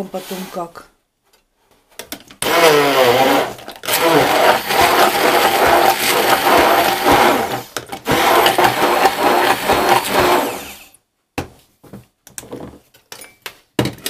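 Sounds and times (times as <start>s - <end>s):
immersion blender running: 2.4s - 10.9s.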